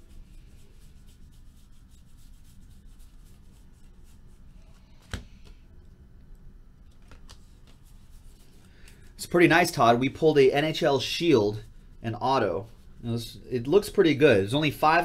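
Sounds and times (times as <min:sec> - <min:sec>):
cards flicking against each other: 0:04.9 - 0:05.6, 0:06.9 - 0:07.8.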